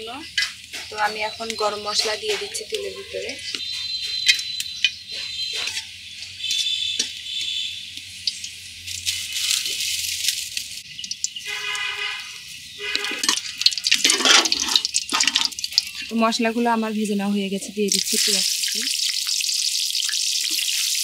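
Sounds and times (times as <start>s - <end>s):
spices sizzling in hot oil: 5.6s - 21.0s
straw crackling as it burns: 6.1s - 16.8s, 17.7s - 21.0s
metal spatula scraping a pan: 11.5s - 16.1s.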